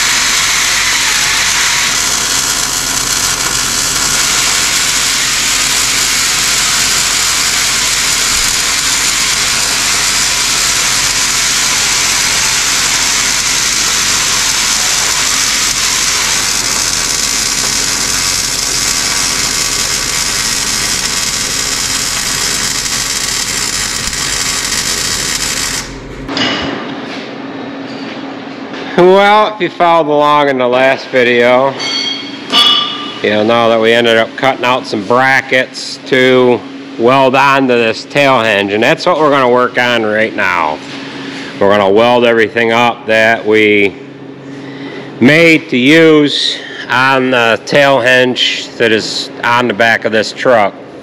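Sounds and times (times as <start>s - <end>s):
power tool cutting metal: 0.0s - 26.2s.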